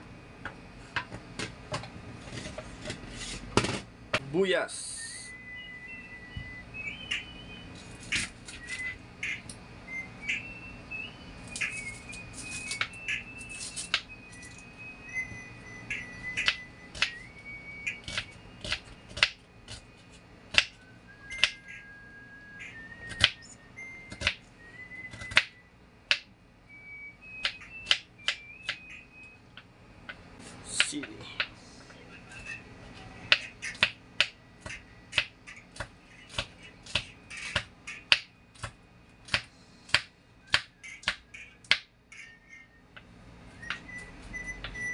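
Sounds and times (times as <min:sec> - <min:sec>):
faint whistled tune: 0:04.8 - 0:07.8, 0:08.5 - 0:09.0, 0:09.8 - 0:19.1, 0:20.7 - 0:25.8, 0:26.7 - 0:29.4, 0:43.5 - 0:44.9
knife chopping on cutting board: 0:33.3 - 0:41.8.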